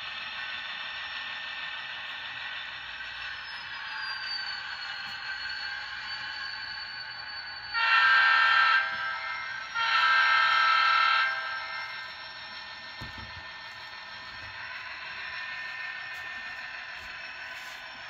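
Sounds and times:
diesel horn blasts: 7.8s - 11.5s
model diesel engine sound: 11.3s - 18.0s.

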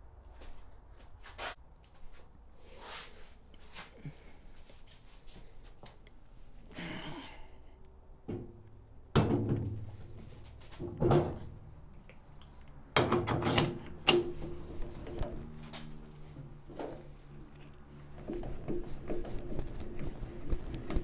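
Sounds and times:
metal clunks and knocks: 8.2s - 10.0s, 10.8s - 11.6s, 13.0s - 14.6s.

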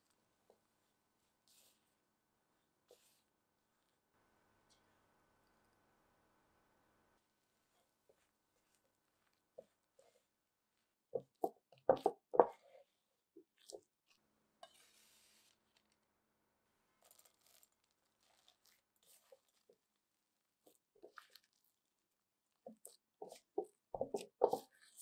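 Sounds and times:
hands squishing crumbly dough: 17.0s - 25.0s.

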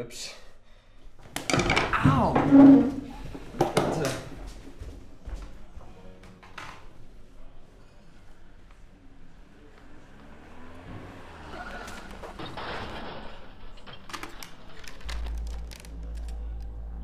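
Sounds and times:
deep low drone: 13.4s - 17.0s.

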